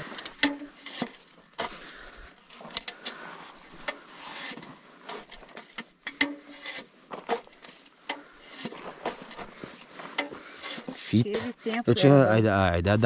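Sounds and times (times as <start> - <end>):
sharp clicks and knocks: 2.6 - 11.0.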